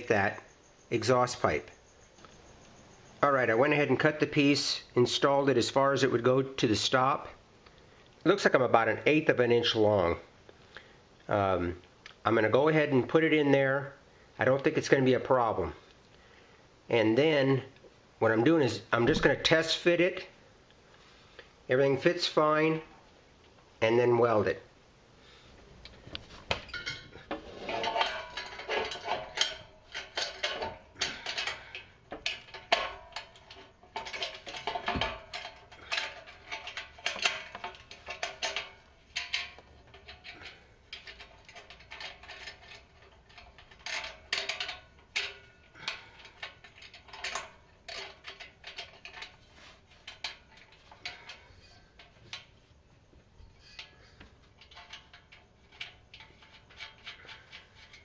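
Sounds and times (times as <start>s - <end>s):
metal clamp clinking: 26.1s - 58.0s.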